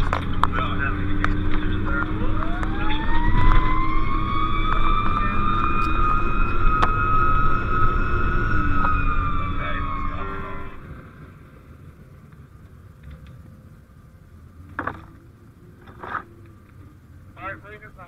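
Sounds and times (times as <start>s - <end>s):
fire engine siren wailing: 0.0s - 11.3s
truck engine rumble: 0.0s - 18.0s.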